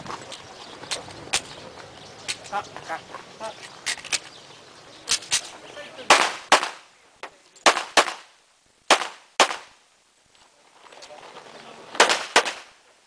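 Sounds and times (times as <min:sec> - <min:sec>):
pistol shots with echo: 0:12.0 - 0:12.7.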